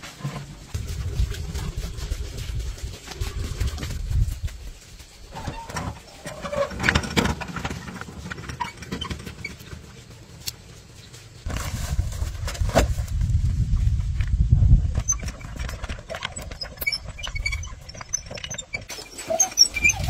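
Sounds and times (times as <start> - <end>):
rough rumble: 0.0 - 20.0
metal wheelbarrow rattling: 5.2 - 10.9, 14.9 - 20.0.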